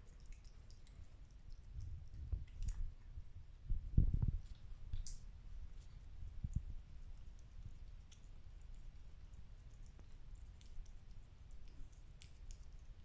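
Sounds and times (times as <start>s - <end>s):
cats licking wet clicks: 0.0s - 3.7s, 4.3s - 13.0s
dull low thumps: 1.8s - 4.4s.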